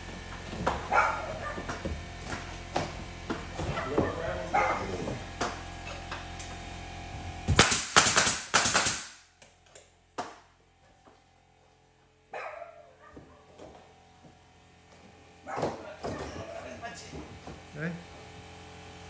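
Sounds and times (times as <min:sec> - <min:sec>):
nail gun firing: 0:07.5 - 0:09.3.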